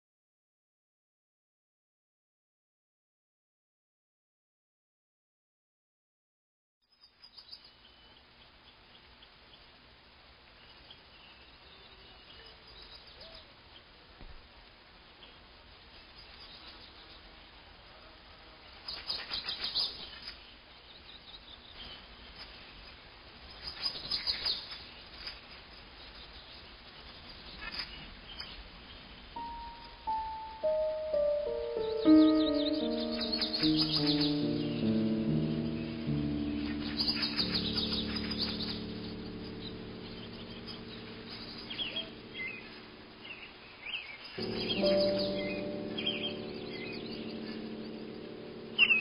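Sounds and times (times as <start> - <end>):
bird chirping: 6.8 - 9.8, 10.5 - 14.0, 16.1 - 49.0
soft music of held chords: 29.4 - 49.0.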